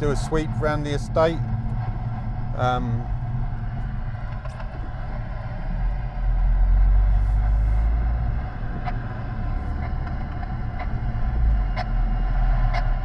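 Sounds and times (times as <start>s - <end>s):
car road and engine rumble: 0.0s - 13.0s.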